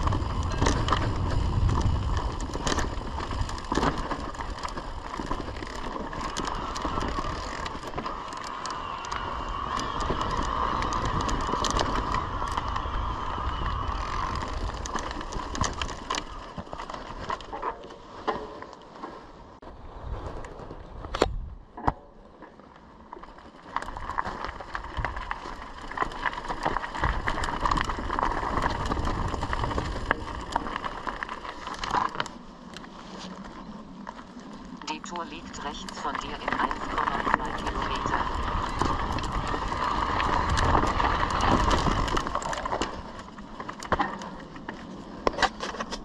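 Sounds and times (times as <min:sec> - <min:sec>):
tyres crunching on gravel: 0:00.0 - 0:19.3, 0:22.4 - 0:46.0
bike rattling over stones: 0:00.0 - 0:46.0
steady mid-pitched whine: 0:34.7 - 0:38.7.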